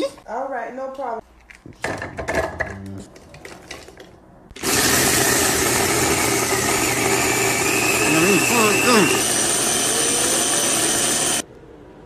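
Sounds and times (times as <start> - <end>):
blender motor chopping food: 4.6 - 11.4.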